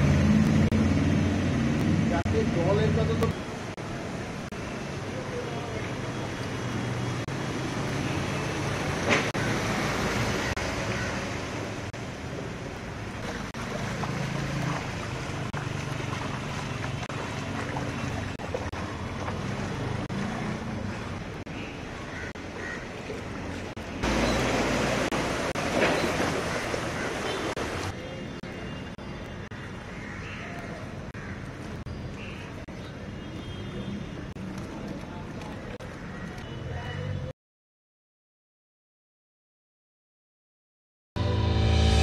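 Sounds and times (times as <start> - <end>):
rushing water: 0.0 - 31.9.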